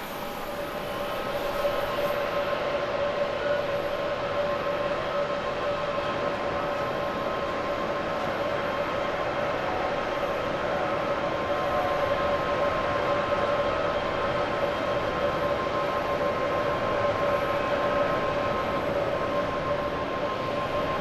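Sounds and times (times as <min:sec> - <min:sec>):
jet engines at takeoff: 0:00.0 - 0:21.0
steady engine whine: 0:00.0 - 0:21.0.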